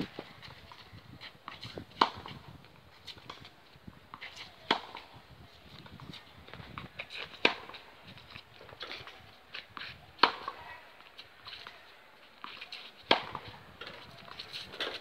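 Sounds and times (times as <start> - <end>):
tennis racket hitting ball: 1.5 - 2.4, 4.1 - 5.1, 7.0 - 7.8, 9.8 - 10.6, 12.4 - 15.0.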